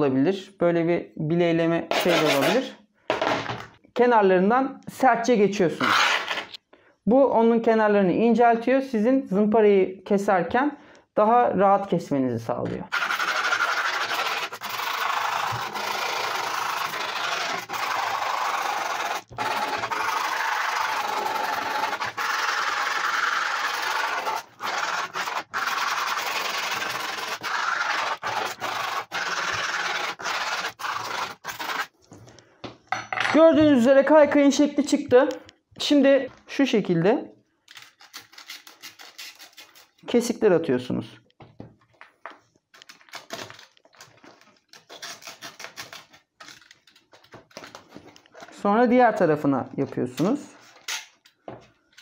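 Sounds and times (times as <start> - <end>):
knife cutting grip tape: 12.9 - 31.9, 37.7 - 40.0, 44.6 - 47.7.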